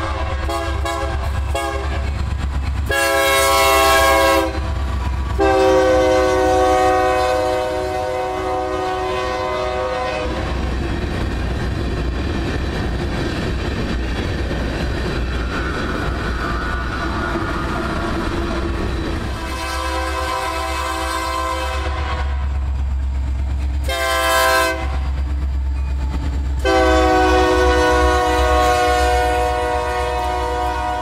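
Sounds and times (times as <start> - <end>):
locomotive air horn blasts: 0.0 - 2.2, 2.9 - 4.7, 5.4 - 10.5, 19.3 - 22.5, 23.8 - 25.0, 26.6 - 31.0
train cars rumbling and clacking: 0.0 - 31.0.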